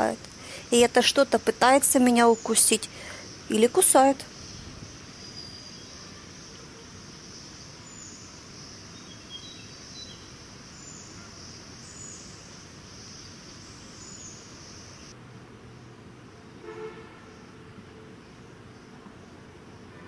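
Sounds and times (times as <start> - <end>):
insect chorus: 0.0 - 15.2.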